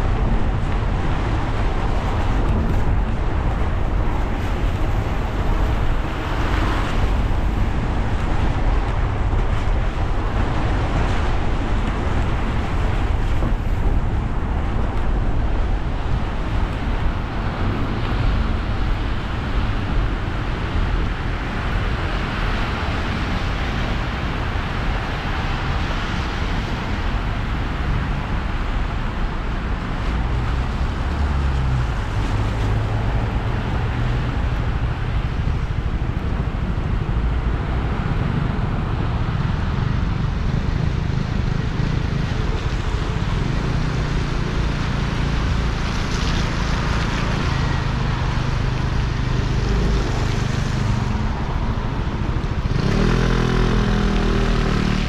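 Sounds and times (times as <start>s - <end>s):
car engine and road rumble: 0.0s - 55.0s
tyres hissing on wet road: 36.9s - 55.0s.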